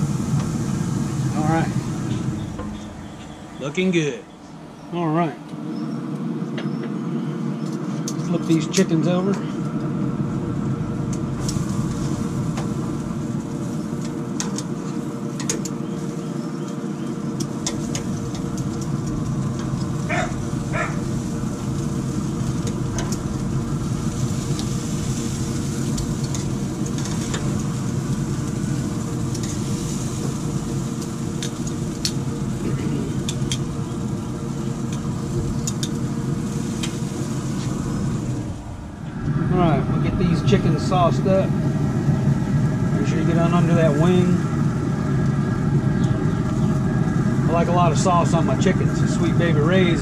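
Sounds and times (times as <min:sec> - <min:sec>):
steady mechanical hum: 0:00.0 - 0:50.0
metal tongs clicking on grill grates: 0:29.3 - 0:29.9, 0:33.2 - 0:33.6, 0:35.6 - 0:36.0.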